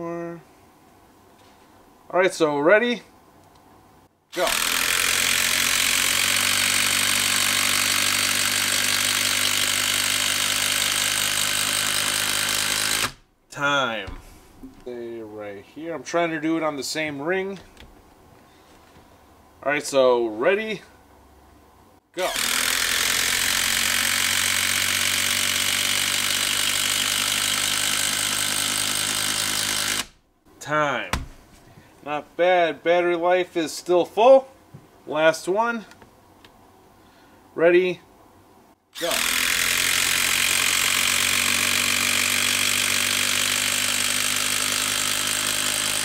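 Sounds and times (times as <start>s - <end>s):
impact driver hammering: 4.4s - 13.2s, 22.2s - 30.2s.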